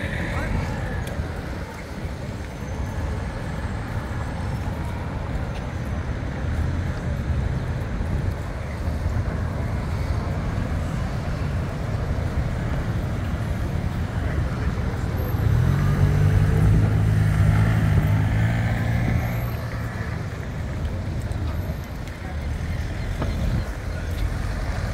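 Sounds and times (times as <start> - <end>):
crowd of pedestrians: 0.0 - 24.9
road traffic rumble: 0.0 - 24.9.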